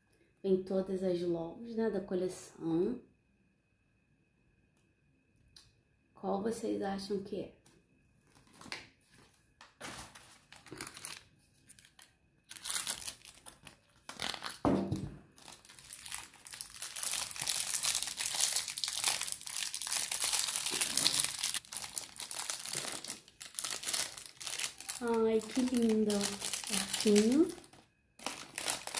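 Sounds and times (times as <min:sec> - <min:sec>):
plastic wrappers crinkling: 0:08.3 - 0:28.9.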